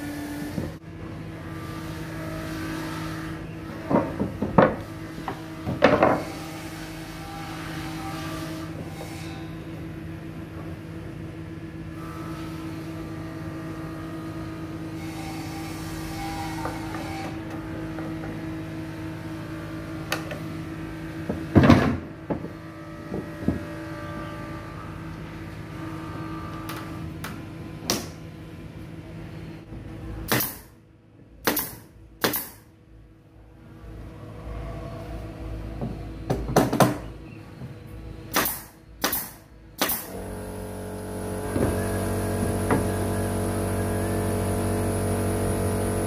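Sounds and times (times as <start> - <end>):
steady machine hum: 6.2 - 46.0
pneumatic nail gun firing: 30.3 - 30.7, 31.4 - 32.7, 38.3 - 46.0.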